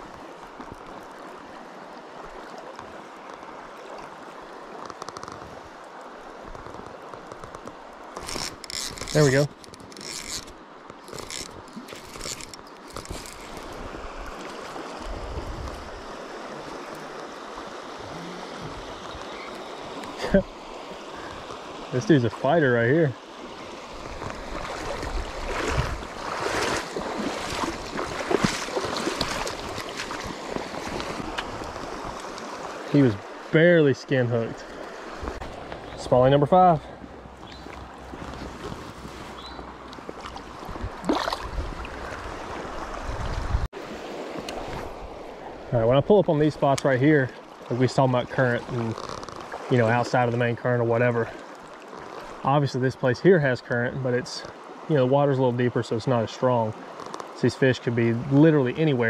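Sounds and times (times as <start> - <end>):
fish splashing in shallow water: 0.0 - 22.0, 23.2 - 33.6, 36.9 - 45.7, 48.6 - 50.3, 51.3 - 52.5, 56.7 - 57.4
creek running: 0.0 - 59.0.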